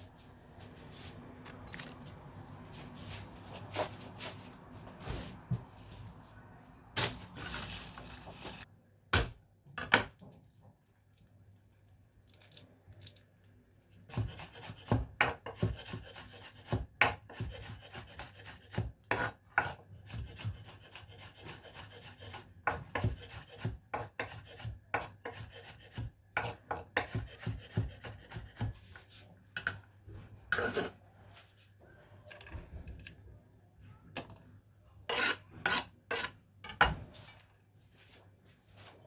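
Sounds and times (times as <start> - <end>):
knife chopping on wooden board: 22.6 - 28.8.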